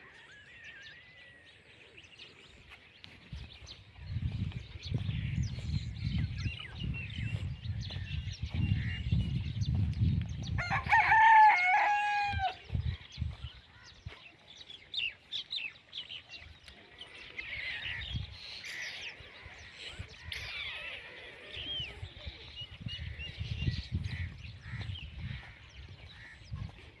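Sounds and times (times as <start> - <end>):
small birds chirping: 0.0 - 27.0
rooster crowing: 10.6 - 12.6.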